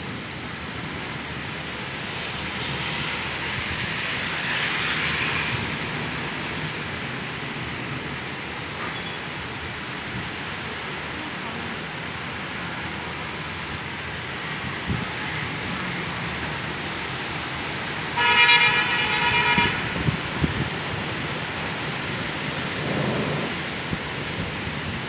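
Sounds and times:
heavy rain: 0.0 - 25.0
wind: 0.0 - 25.0
vehicle horn: 18.2 - 20.0.

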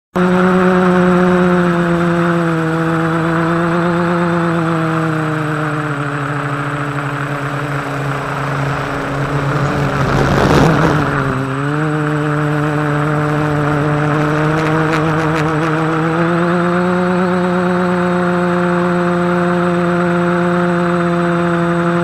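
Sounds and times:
drone motors whining: 0.2 - 22.0
wind rushing: 8.2 - 11.5.

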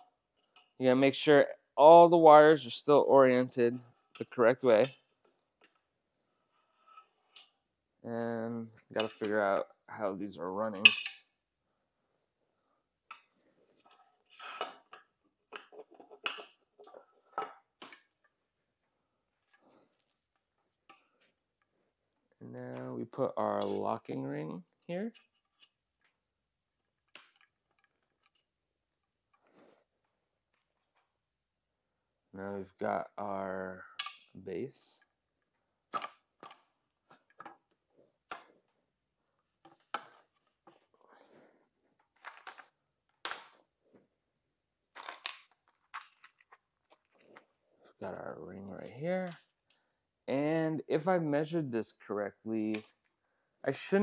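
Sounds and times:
bicycle parts clinking and rattling: 10.8 - 11.3.

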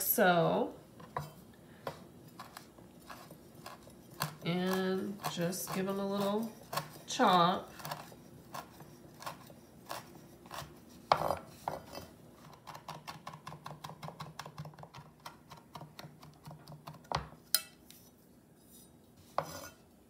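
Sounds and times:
knife chopping on wooden board: 1.9 - 7.1, 7.8 - 17.4.

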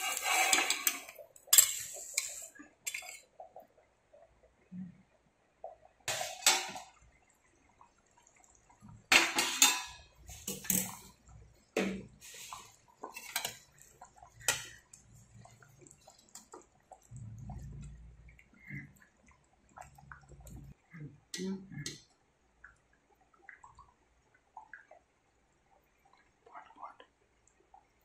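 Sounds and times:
wet stirring: 12.0 - 20.8.

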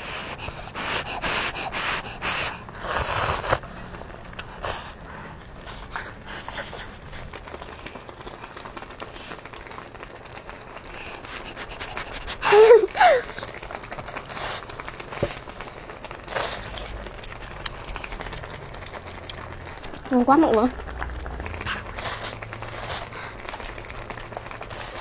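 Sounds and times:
noodles being slurped: 0.0 - 25.0
chewing: 0.3 - 12.5, 13.2 - 25.0.

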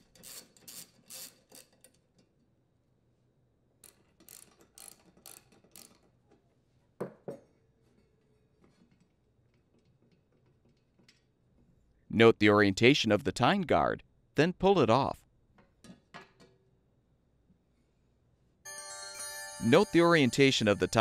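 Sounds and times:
socket ratchet clicking: 3.8 - 6.0.

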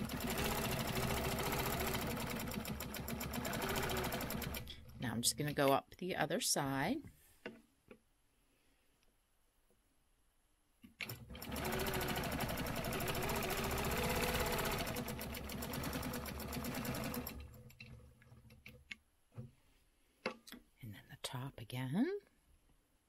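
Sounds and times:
quilting machine stitching: 0.0 - 5.6, 11.0 - 18.8.

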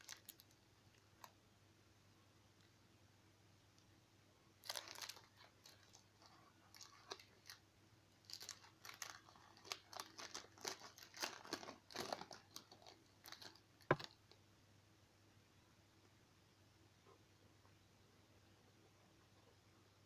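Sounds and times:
foil wrapper crinkling: 0.0 - 0.6, 4.6 - 7.6, 8.2 - 14.3.

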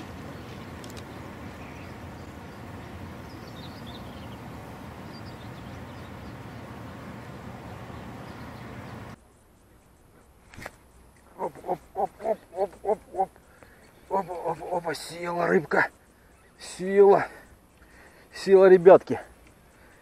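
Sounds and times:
faint bird chirps: 7.7 - 20.0.

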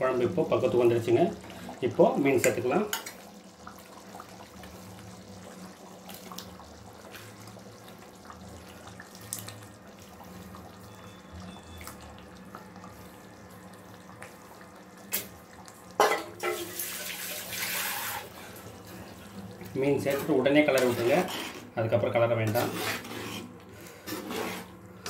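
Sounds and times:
curry bubbling in a pot: 0.0 - 21.8.

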